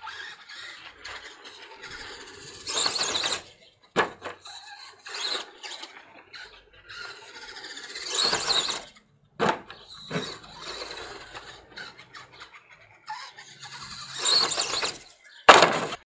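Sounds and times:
toy truck motor whining: 0.0s - 16.0s
toy truck landing knock: 2.0s - 4.5s, 8.1s - 11.6s, 14.1s - 16.0s.

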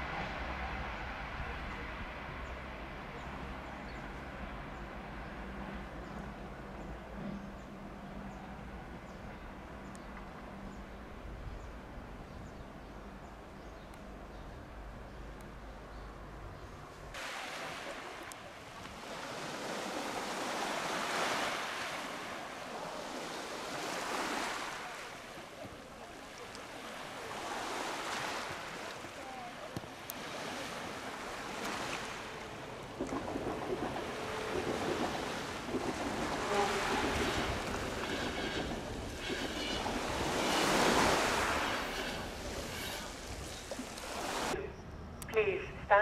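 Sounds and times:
sea waves washing onto rocks: 17.2s - 44.6s.

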